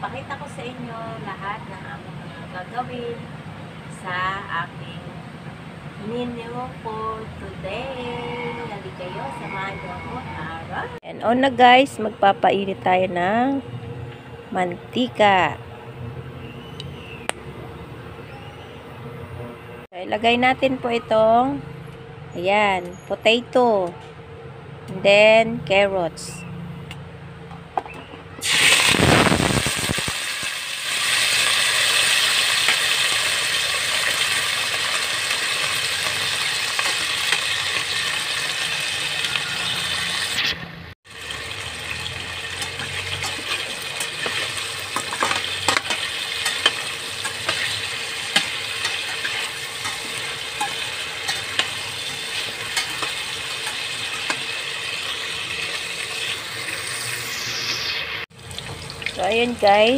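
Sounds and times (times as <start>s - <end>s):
vegetables frying in hot oil: 28.4s - 59.9s
metal spatula clicking and scraping: 42.6s - 54.4s.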